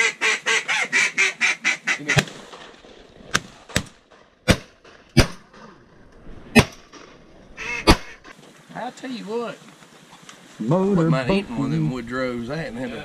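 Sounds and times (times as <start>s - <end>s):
duck call quacks: 0.0s - 2.2s, 7.6s - 8.3s.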